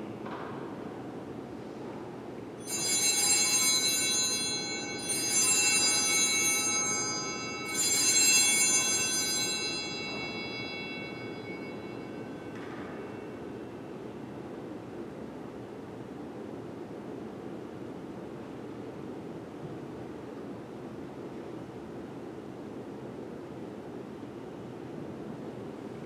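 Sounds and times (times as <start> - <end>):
altar bells ringing: 2.6 - 14.1.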